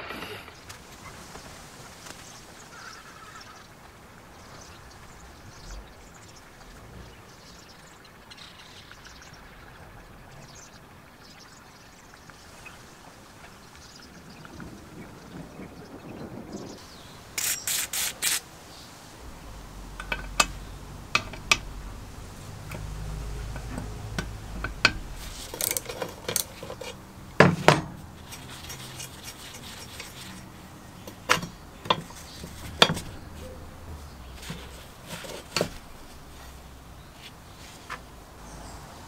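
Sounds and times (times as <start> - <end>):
metal clinks and scrapes: 17.4 - 18.4, 22.7 - 27.0.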